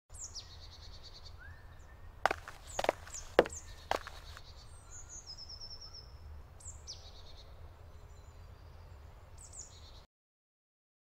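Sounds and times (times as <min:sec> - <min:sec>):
songbirds calling: 0:00.1 - 0:10.1.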